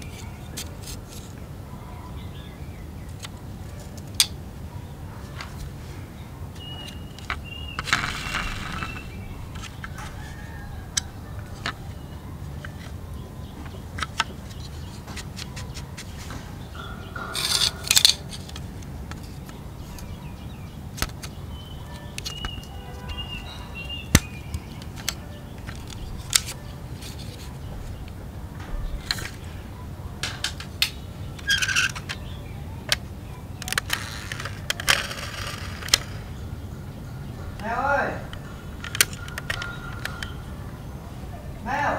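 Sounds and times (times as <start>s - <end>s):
toy parts clicking and snapping: 3.1s - 4.4s, 6.6s - 13.0s, 13.6s - 20.2s, 20.9s - 28.2s, 28.9s - 29.4s, 30.2s - 36.3s, 38.3s - 40.4s
rattling scrapes: 6.6s - 13.0s, 13.6s - 20.2s.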